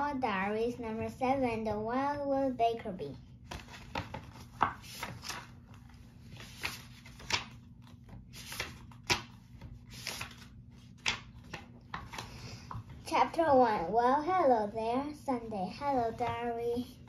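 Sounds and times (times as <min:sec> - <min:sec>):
book pages turning: 0:03.3 - 0:13.0.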